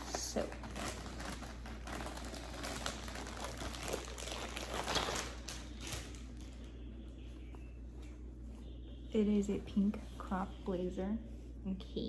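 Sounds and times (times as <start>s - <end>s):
packaging crinkling and rustling: 0.0s - 6.9s.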